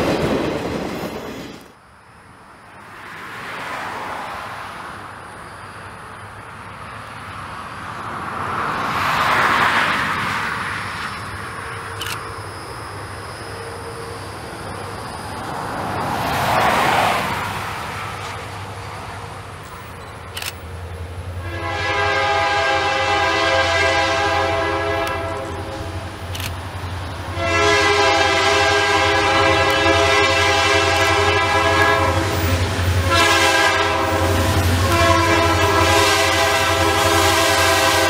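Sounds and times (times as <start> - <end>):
locomotive air horn blasts: 21.4 - 26.0, 27.3 - 38.0.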